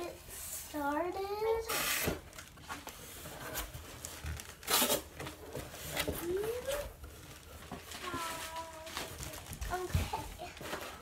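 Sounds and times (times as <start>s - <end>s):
cardboard tearing rip: 4.4s - 5.2s.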